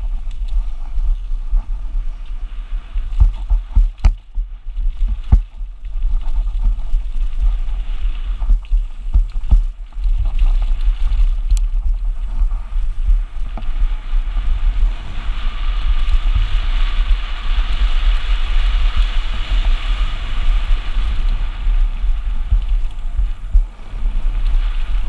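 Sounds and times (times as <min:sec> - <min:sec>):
bike tyres hissing on dirt: 0:00.0 - 0:25.0
wind on microphone: 0:00.0 - 0:25.0.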